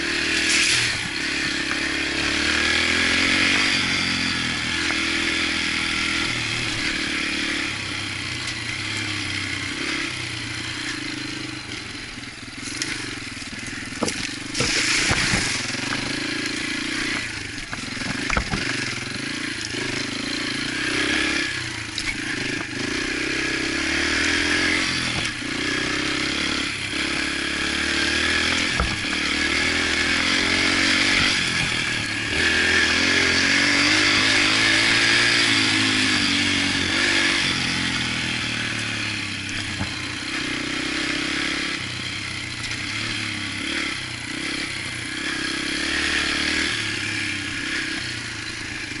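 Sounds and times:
motorbike engine revving: 0.0 - 49.0
sharp knocks and rattles: 12.6 - 19.2.

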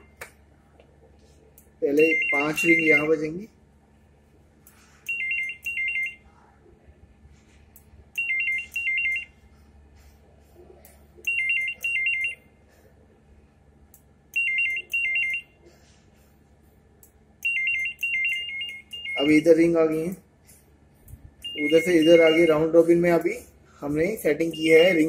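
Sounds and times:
electronic telephone ringing: 2.0 - 3.2, 5.1 - 6.2, 8.2 - 9.4, 11.3 - 12.4, 14.4 - 15.5, 17.4 - 19.5, 21.4 - 22.8.

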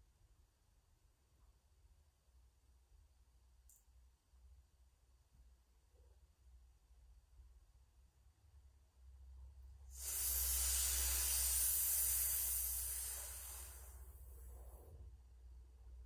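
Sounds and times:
hissing breath inhale: 9.9 - 15.0.

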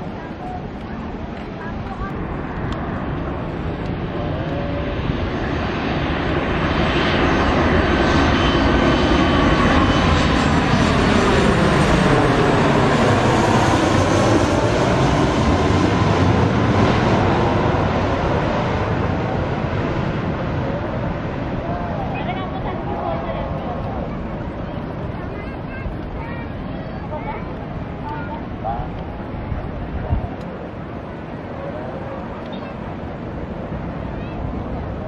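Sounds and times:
jet airliner engine roar: 0.0 - 35.0.

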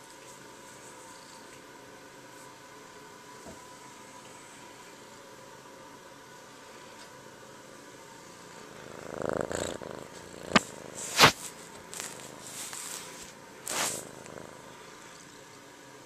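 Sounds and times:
kitten purring: 8.1 - 15.5
fur rustling against camera: 10.5 - 14.1.

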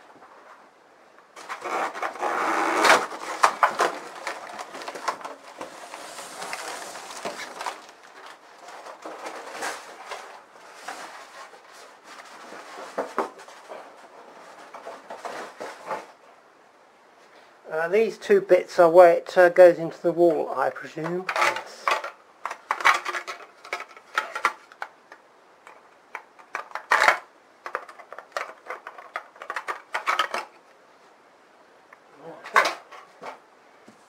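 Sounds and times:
packaging rustling and knocking: 1.4 - 16.2, 21.1 - 25.0, 25.7 - 30.6.

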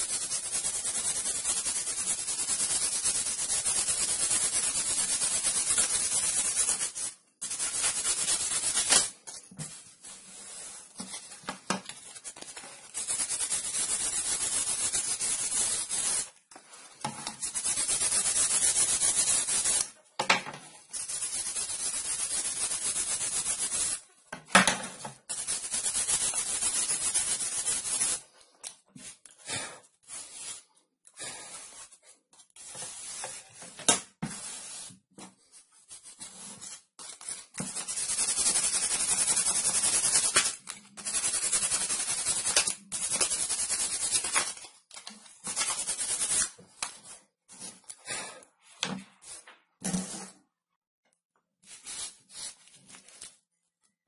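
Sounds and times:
sandpaper sanding wood: 0.0 - 9.2, 12.1 - 16.3, 17.3 - 19.9, 20.9 - 24.0, 25.2 - 28.3, 29.5 - 32.0, 32.6 - 33.6, 34.2 - 35.1, 35.8 - 44.7, 45.4 - 46.6, 51.7 - 52.7.

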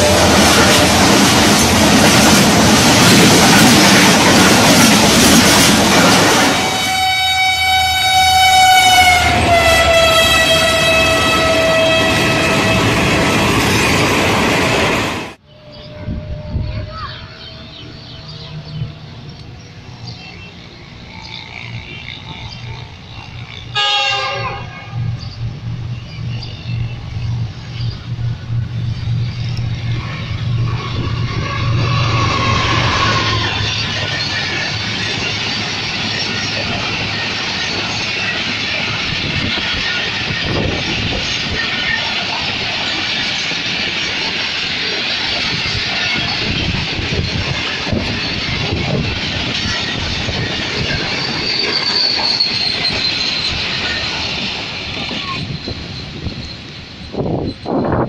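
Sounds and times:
train wheels rushing on rail: 0.0 - 15.4, 16.1 - 58.0
locomotive horn blast: 6.5 - 13.7, 23.6 - 25.2, 30.9 - 33.8.

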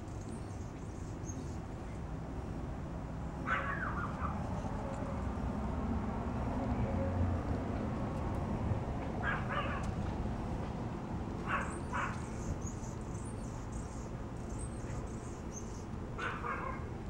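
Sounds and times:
dog yipping: 3.4 - 4.6, 9.2 - 9.9, 11.4 - 12.4, 16.2 - 16.9.

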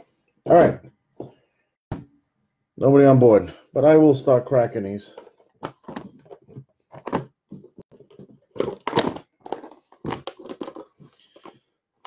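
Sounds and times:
packaging tearing and crinkling: 8.6 - 10.9.

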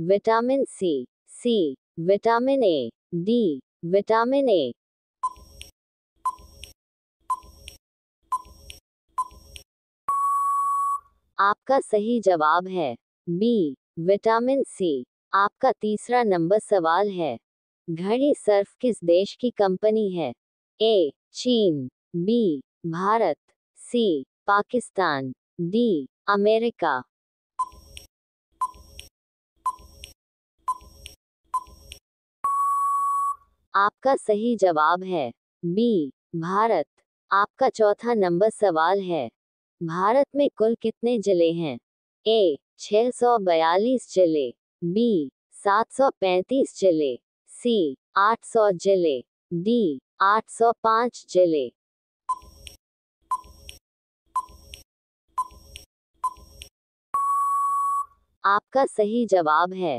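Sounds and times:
short electronic beeps: 5.2 - 5.5, 6.2 - 6.6, 7.3 - 7.6, 8.3 - 8.6, 9.2 - 9.5, 10.1 - 11.1, 27.6 - 27.9, 28.6 - 28.9, 29.6 - 30.0, 30.7 - 31.0, 31.6 - 31.8, 32.4 - 33.4, 52.3 - 52.6, 53.3 - 53.6, 54.4 - 54.7, 55.4 - 56.6, 57.2 - 58.2
timer ticks: 5.2 - 5.7, 6.3 - 10.2, 27.6 - 29.1, 29.7 - 32.0, 52.3 - 53.8, 54.4 - 54.8, 55.4 - 57.3
long steady beep: 10.1 - 11.1, 32.4 - 33.4, 57.2 - 58.2.

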